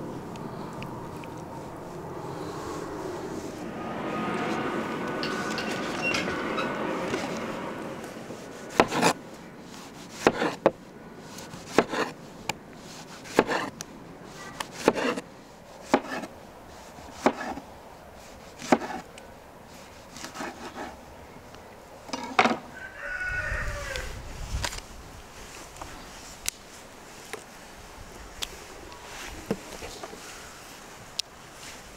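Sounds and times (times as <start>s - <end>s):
knife slicing on cutting board: 8.7s - 9.2s, 11.5s - 12.2s.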